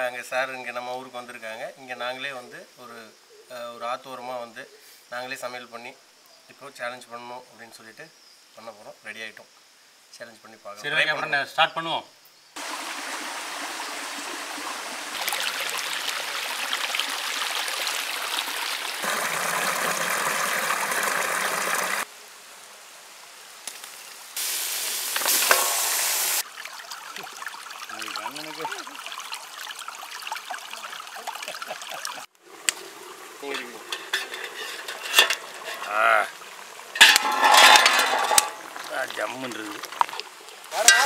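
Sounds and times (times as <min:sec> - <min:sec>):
stream running over stones: 0:12.6 - 0:41.0
meat hissing in hot oil: 0:23.9 - 0:26.4.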